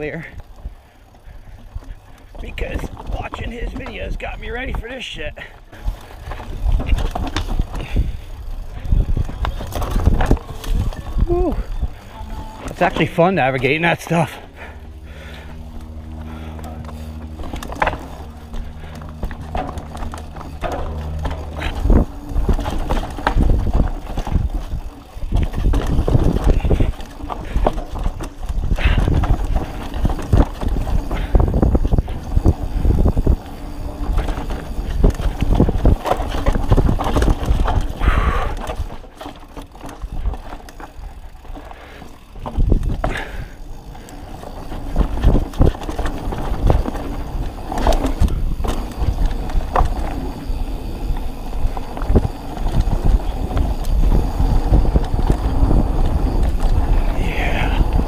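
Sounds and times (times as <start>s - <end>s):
bike clattering over bumps: 0.0s - 58.0s
tyres crunching over dirt and rock: 0.0s - 58.0s
wind rumble on microphone: 5.8s - 13.1s, 14.2s - 58.0s.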